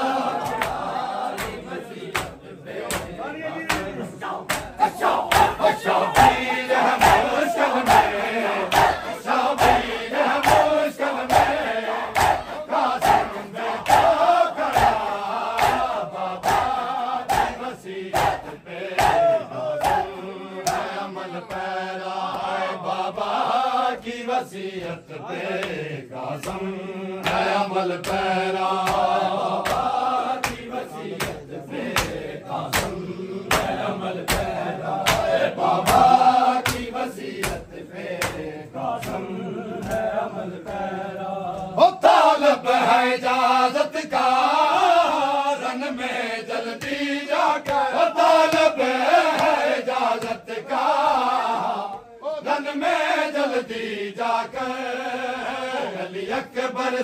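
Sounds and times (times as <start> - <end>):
men chanting in unison: 0.0 - 57.0
hands slapping on chests: 0.4 - 22.6, 25.5 - 40.9, 46.7 - 50.5.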